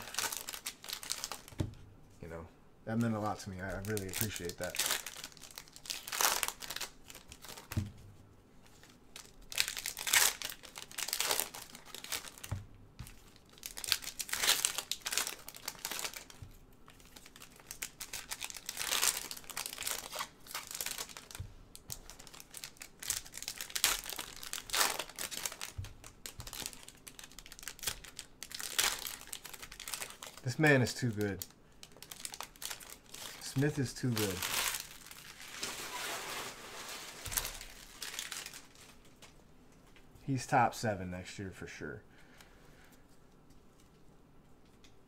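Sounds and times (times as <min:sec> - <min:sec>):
foil wrappers tearing and crinkling: 0:00.0 - 0:01.6, 0:03.0 - 0:07.8, 0:08.7 - 0:39.3.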